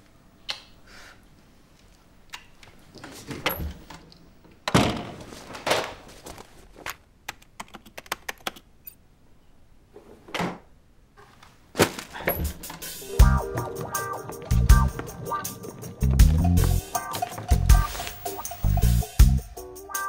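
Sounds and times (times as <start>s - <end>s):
door opening: 3.0s - 4.1s, 11.8s - 15.0s.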